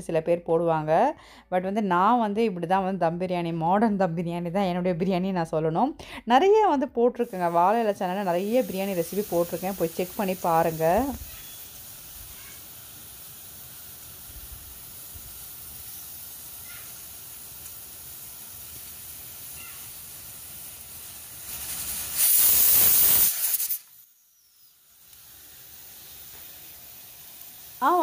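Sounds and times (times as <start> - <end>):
pressure cooker hissing: 7.2 - 28.0
pressure cooker steam whistle: 7.3 - 17.1, 22.0 - 25.6.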